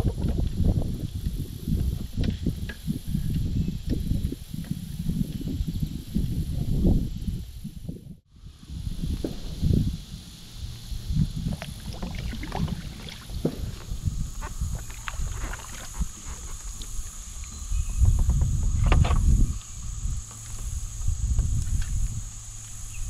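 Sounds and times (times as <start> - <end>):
paddle strokes splashing: 11.4 - 23.0.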